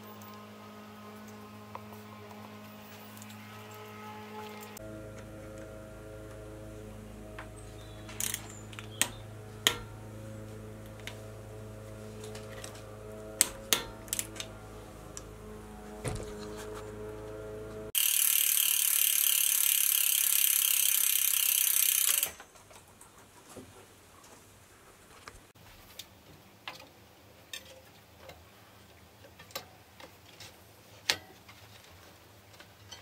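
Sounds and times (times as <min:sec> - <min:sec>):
low hum: 0:00.0 - 0:18.5
freewheel ratchet buzzing: 0:06.9 - 0:22.4.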